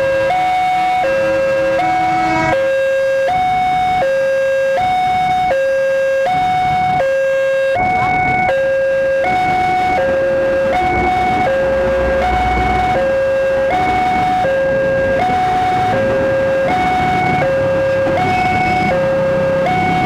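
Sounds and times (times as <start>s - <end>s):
level crossing two-tone alarm: 0.0s - 20.0s
electric train rumbling past: 0.8s - 3.1s, 11.6s - 13.6s.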